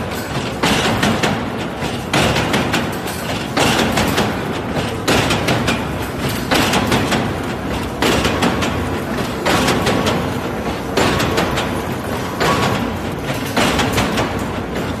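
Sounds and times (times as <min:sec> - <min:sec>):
machine metallic clatter: 0:00.0 - 0:15.0.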